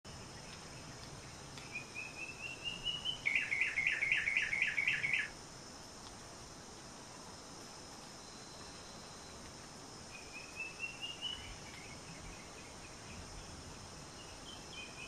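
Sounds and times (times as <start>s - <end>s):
bird singing: 0.1s - 5.3s, 10.1s - 15.0s.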